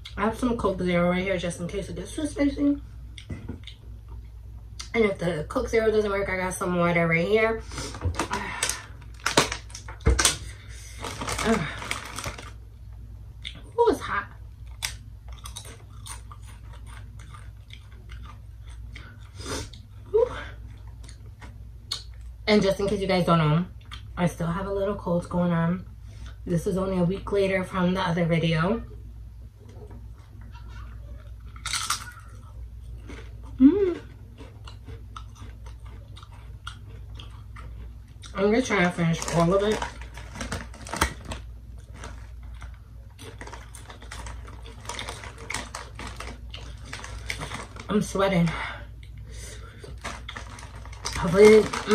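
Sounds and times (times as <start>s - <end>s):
plastic chip bag crackling: 7.8s - 12.6s, 38.6s - 48.5s, 49.6s - 51.9s
chip being chewed: 14.7s - 19.9s, 30.5s - 38.4s, 39.1s - 47.9s.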